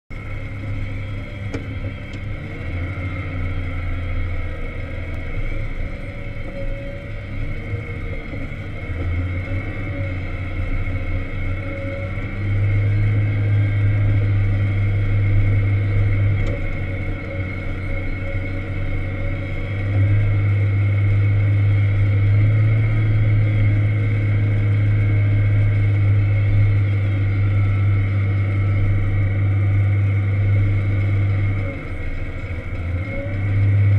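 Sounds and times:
diesel engine under load: 0.1 - 33.9
steady high whine: 0.1 - 33.9.

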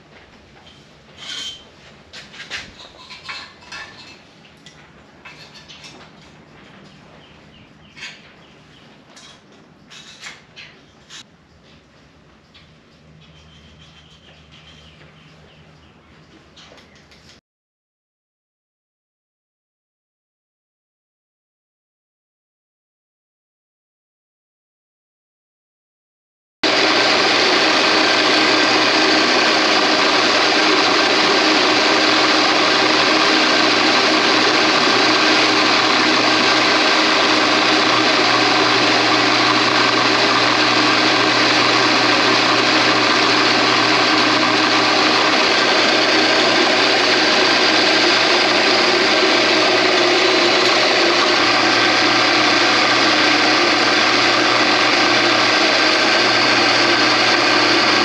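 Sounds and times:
drill press motor running: 26.6 - 58.0
drill bit boring into metal: 26.7 - 58.0.

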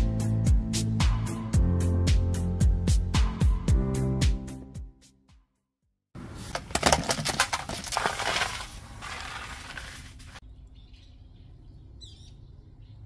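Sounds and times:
dry leaves scraping on pavement: 6.2 - 10.4
bird chirp: 10.4 - 13.0.

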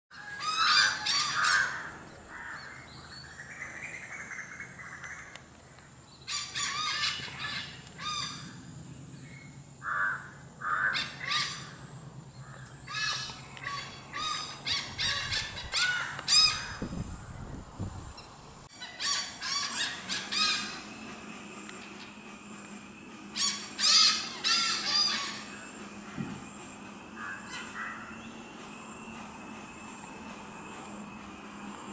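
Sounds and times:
hornbills cackling: 0.1 - 2.9, 6.3 - 8.5, 9.8 - 16.8, 18.7 - 29.4.

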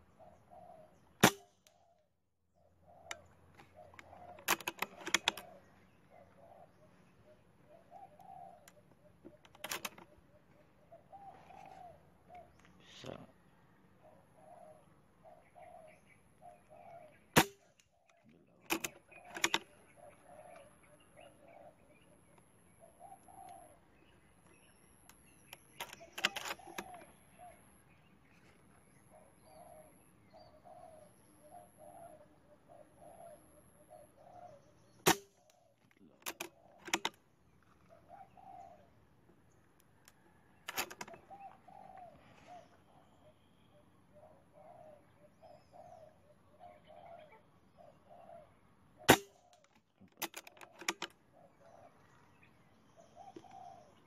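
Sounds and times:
doves cooing: 0.0 - 1.9, 2.5 - 54.0
air rifle firing: 1.2 - 1.6, 17.4 - 17.7, 35.0 - 35.3, 49.1 - 49.4.

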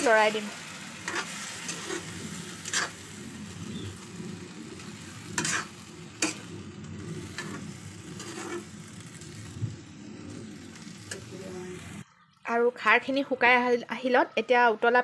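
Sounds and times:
frying sizzle: 0.0 - 14.1
ladle scraping in a pan: 1.0 - 3.2, 4.8 - 9.6.

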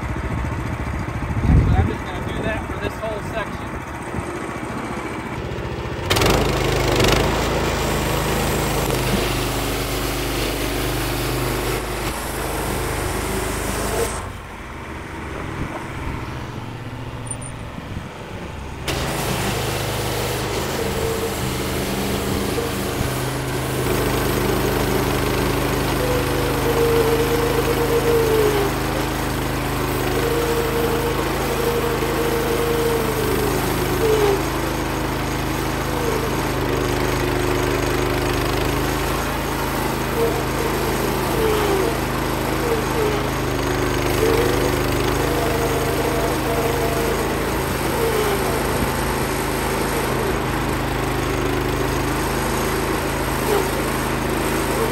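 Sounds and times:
sawmill engine running under load: 0.0 - 54.9
wavering squeal: 15.9 - 17.9, 18.8 - 37.4, 38.2 - 50.7.

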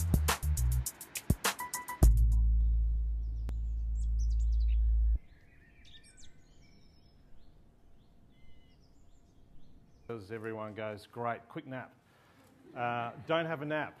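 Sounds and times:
deep bass drone music: 0.0 - 0.9, 2.0 - 5.2
small birds chirping: 2.6 - 11.0.

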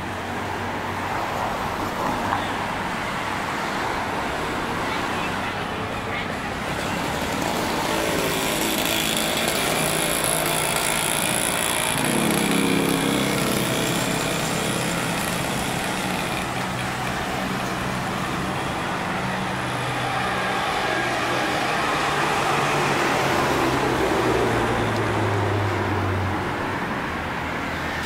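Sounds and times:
road traffic: 0.0 - 28.0
vehicle engine passing: 6.8 - 26.4.

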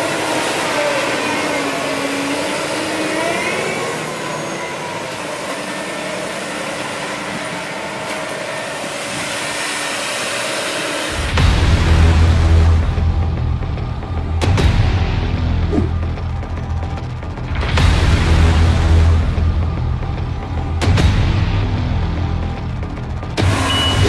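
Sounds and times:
combine harvester diesel engine: 0.0 - 24.0
music with deep bass: 11.1 - 24.0.

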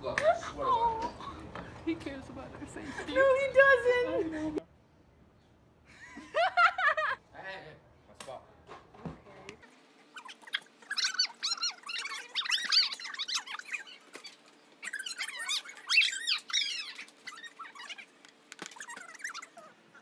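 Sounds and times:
high wavering squeaks: 9.6 - 20.0.

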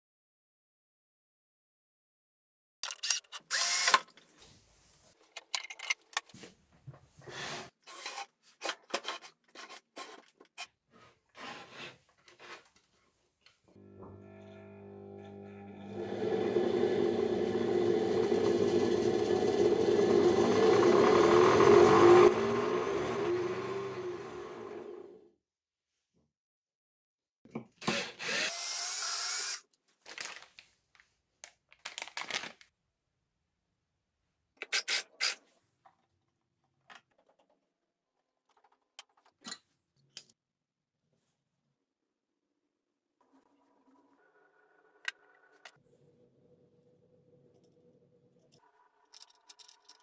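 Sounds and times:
belt sander whirring: 13.8 - 25.2
faint clicks of small parts: 48.4 - 50.0.

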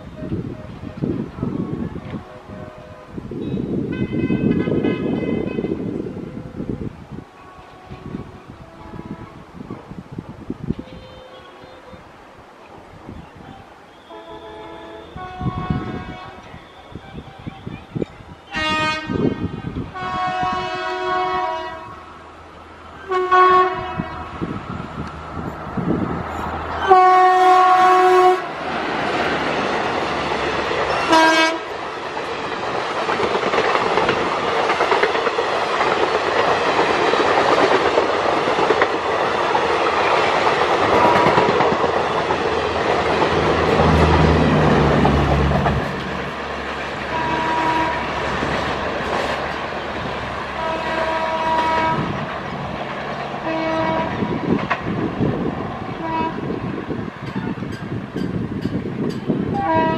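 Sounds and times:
lower train horn blasts: 0.0 - 9.7, 10.7 - 12.1, 13.4 - 22.2, 23.0 - 24.6, 25.8 - 28.6, 30.9 - 31.8, 40.8 - 41.6, 43.3 - 48.5, 50.4 - 52.3, 53.4 - 54.6, 55.9 - 57.8, 59.5 - 59.9
train coaches rumbling past: 0.0 - 59.9
locomotive horn: 1.3 - 6.7, 7.3 - 9.5, 10.7 - 12.1, 13.5 - 17.8, 18.5 - 22.1, 23.0 - 24.5, 26.7 - 28.6, 30.9 - 31.7, 40.8 - 41.5, 43.4 - 46.3, 46.9 - 48.4, 50.5 - 52.3, 53.4 - 54.4, 56.0 - 56.6, 59.6 - 59.9
wheels clacking over rail joints: 25.0 - 55.0.

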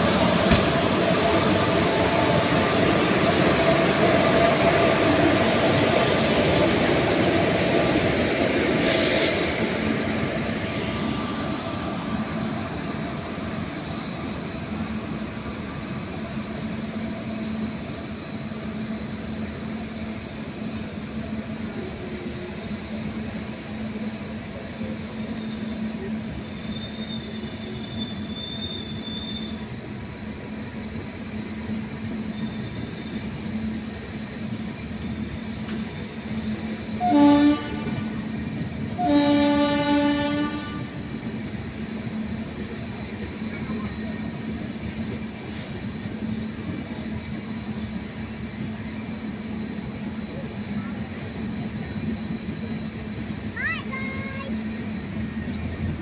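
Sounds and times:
electric train rumbling past: 0.0 - 56.0
high wheel squeal: 25.2 - 29.7, 32.2 - 33.2.

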